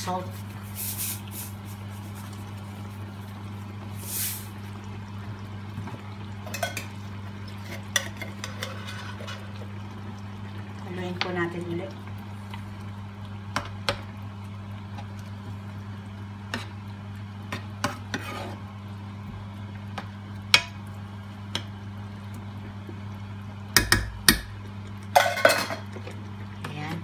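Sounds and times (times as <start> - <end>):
spoon stirring stew in a pan: 7.5 - 9.6, 17.5 - 18.6
spoon knocking and scraping pan: 7.9 - 9.4, 25.2 - 25.9.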